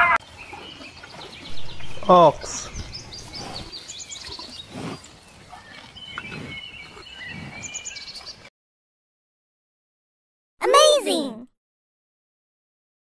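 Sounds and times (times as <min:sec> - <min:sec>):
birds chirping and whistling: 0:00.2 - 0:08.5.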